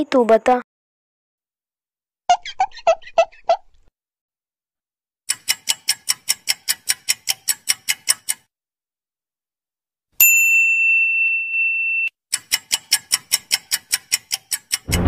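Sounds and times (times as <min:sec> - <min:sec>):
fast sharp ticks: 0:05.3 - 0:08.5, 0:12.3 - 0:15.0
bright bell ding: 0:10.2 - 0:12.1.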